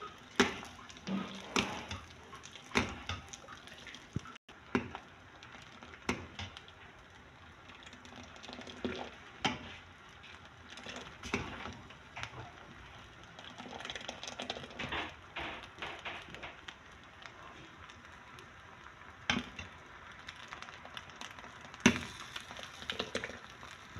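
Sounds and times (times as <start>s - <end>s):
crackling: 0.0s - 23.9s
soup bubbling in a pan: 0.0s - 23.9s
spatula knocking and scraping pan: 0.2s - 3.4s, 14.4s - 16.7s.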